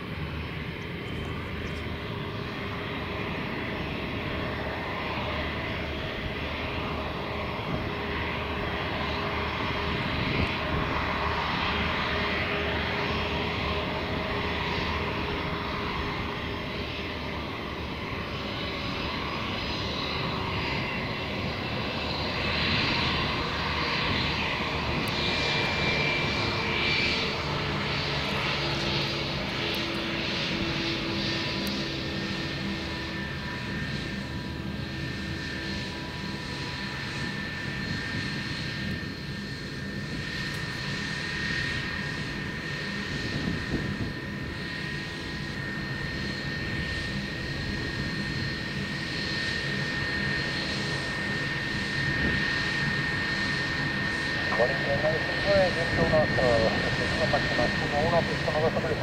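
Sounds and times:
jet engines rumbling with fan whine: 0.0 - 59.0.

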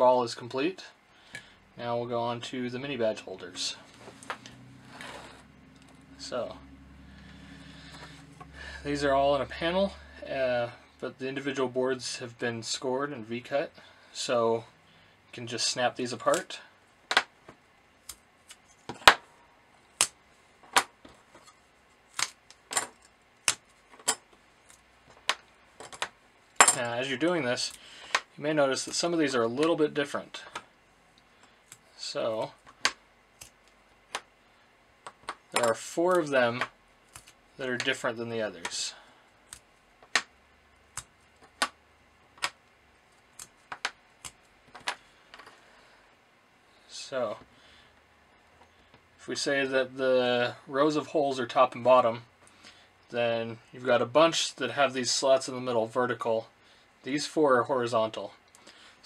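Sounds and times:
circuit boards snapping: 22.1 - 24.2.

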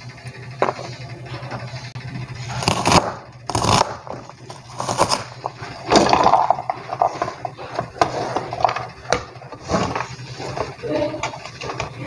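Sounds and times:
onion scraped off board: 2.4 - 5.3.

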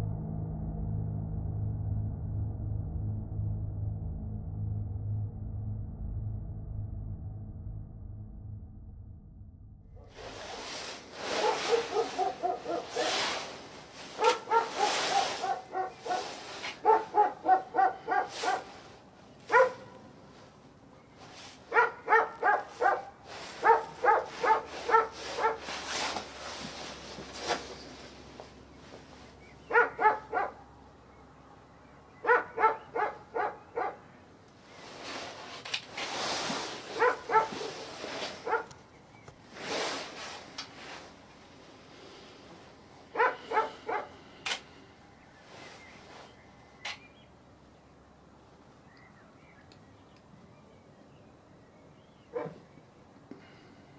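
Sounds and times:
rushing hiss: 10.1 - 16.8
dog barking: 11.3 - 13.3, 14.2 - 18.8, 19.5 - 20.0, 21.7 - 25.7, 29.7 - 30.6, 32.2 - 34.1, 37.0 - 38.7, 43.1 - 44.2, 52.3 - 52.6.

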